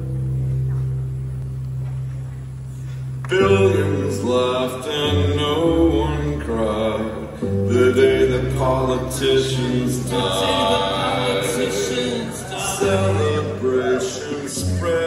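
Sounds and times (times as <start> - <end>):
voices singing in harmony: 3.3 - 15.0
cello notes: 5.4 - 15.0.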